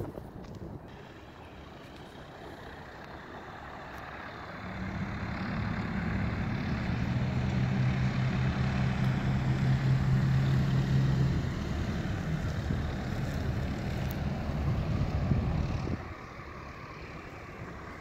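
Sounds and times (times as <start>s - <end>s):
wind buffeting microphone: 0.0s - 0.9s, 4.9s - 18.0s
small airplane engine droning: 0.0s - 18.0s.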